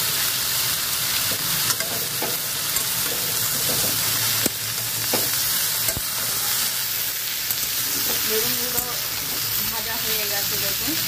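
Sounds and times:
vegetables sizzling in oil: 0.0s - 11.0s
metal spatula scraping pan: 1.3s - 4.3s, 5.0s - 6.9s.

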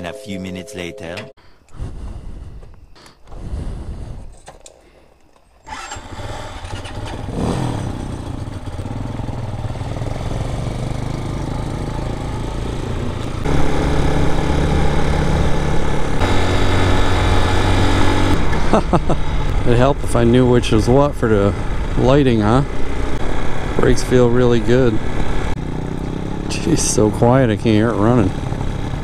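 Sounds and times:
motorcycle engine running: 6.0s - 29.0s.

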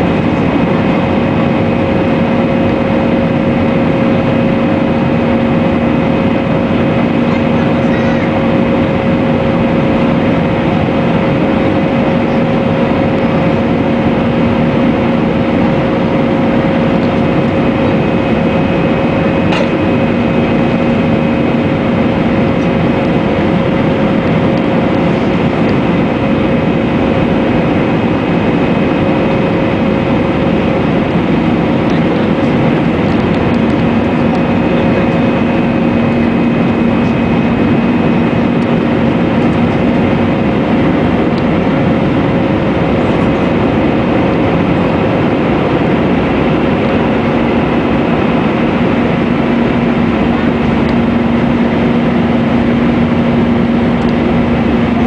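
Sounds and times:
airplane cabin air rush: 0.0s - 55.0s
jet engine drone: 0.0s - 55.0s.

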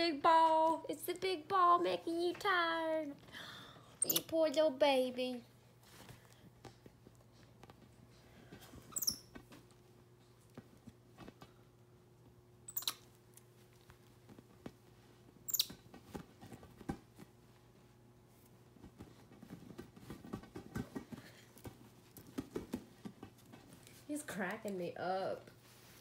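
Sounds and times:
monkey squeaking: 4.0s - 4.3s, 8.9s - 9.3s, 12.7s - 13.0s, 15.5s - 15.8s
rustling and patting: 5.1s - 12.5s, 13.2s - 26.0s
taps and rubbing on inflatable ball: 18.6s - 24.0s.

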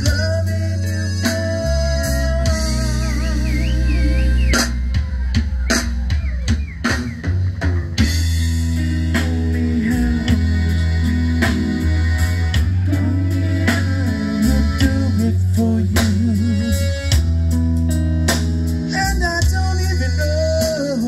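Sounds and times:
accordion notes: 0.0s - 7.1s, 8.4s - 17.8s
bass guitar: 0.0s - 21.0s
drum kit beat: 0.0s - 21.0s.

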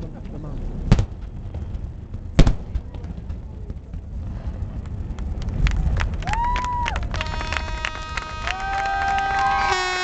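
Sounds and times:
fireworks crackling and popping: 0.8s - 8.6s
boat horns sounding: 7.1s - 10.0s.

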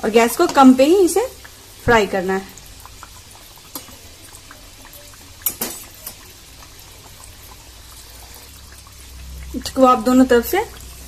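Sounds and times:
deep-frying bubbling sizzle: 0.0s - 11.0s.

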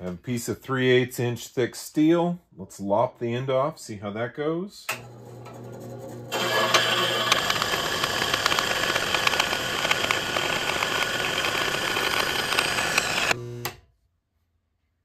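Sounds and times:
bandsaw cutting steel: 5.0s - 13.8s.

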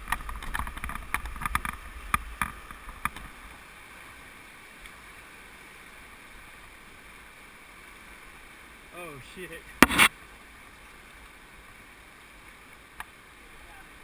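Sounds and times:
rushing creek water: 0.0s - 14.0s.

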